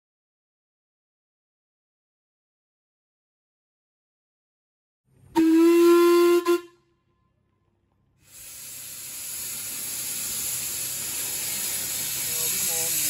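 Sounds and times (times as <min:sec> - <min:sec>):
steam whistle: 0:05.3 - 0:06.9
steam hissing from drain cocks: 0:08.2 - 0:13.0.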